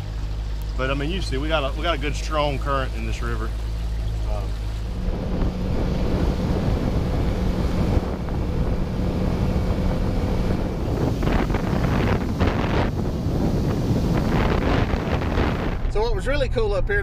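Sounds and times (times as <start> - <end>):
boat motor humming: 0.0 - 16.8
wind rushing over microphone: 4.4 - 17.0.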